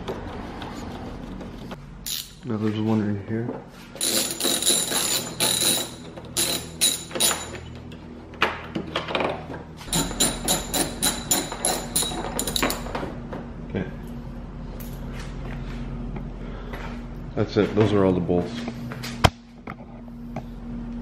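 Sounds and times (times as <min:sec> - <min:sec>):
ratchet clicking: 0:02.0 - 0:02.4, 0:04.0 - 0:07.6.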